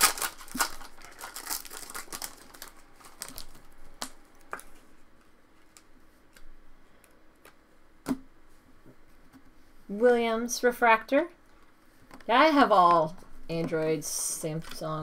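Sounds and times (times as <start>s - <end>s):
foil wrapper crinkling: 0.0s - 4.8s.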